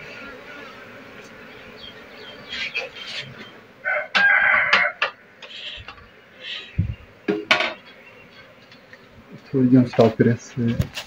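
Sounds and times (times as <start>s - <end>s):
rooster crowing: 3.8s - 5.2s.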